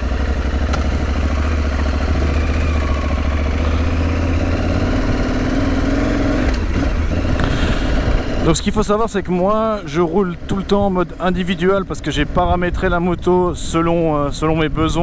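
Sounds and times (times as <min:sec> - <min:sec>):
motorcycle engine pulling away: 0:00.0 - 0:08.6.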